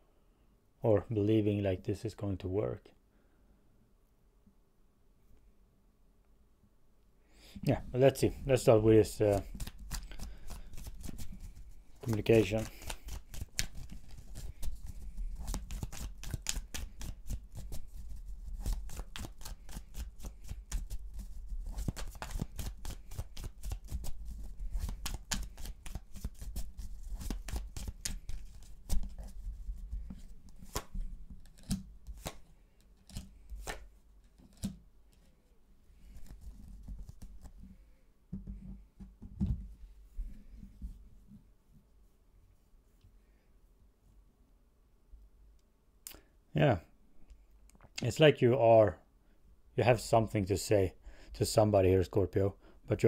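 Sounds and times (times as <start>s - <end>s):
cards being shuffled: 7.7s - 35.4s, 36.0s - 37.6s.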